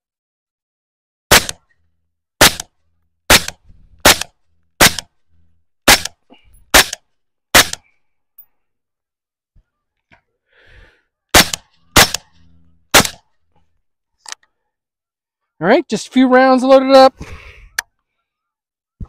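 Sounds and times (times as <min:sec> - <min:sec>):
suppressed rifle shots: 0:01.3 - 0:01.7, 0:02.4 - 0:02.7, 0:03.3 - 0:05.1, 0:05.9 - 0:07.8, 0:11.3 - 0:13.2.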